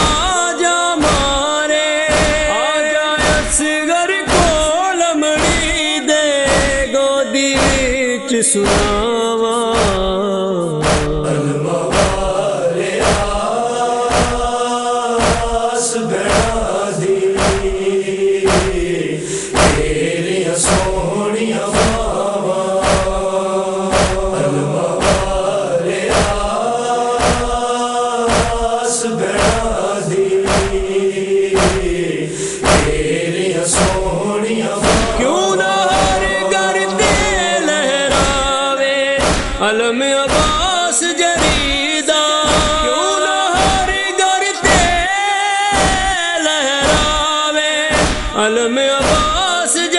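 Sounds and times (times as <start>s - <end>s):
steady rhythmic strikes: 0.0s - 7.0s, 7.6s - 9.1s, 10.8s - 15.7s, 16.3s - 21.1s, 21.8s - 45.2s, 45.8s - 46.2s, 46.8s - 49.6s
voices chanting in unison: 2.1s - 4.8s, 10.8s - 46.2s, 47.9s - 48.4s, 49.0s - 49.8s.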